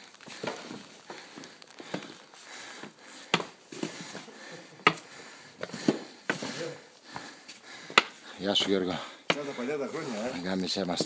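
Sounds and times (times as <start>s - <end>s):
snow shovel scraping: 9.4s - 10.6s.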